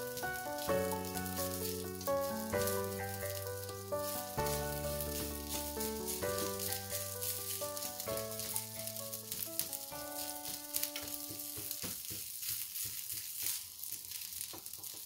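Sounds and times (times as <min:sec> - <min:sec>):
soft background music: 0:00.0 - 0:11.9
dough sizzling in a pan: 0:00.0 - 0:15.0
spatula scraping a pan: 0:00.1 - 0:15.0.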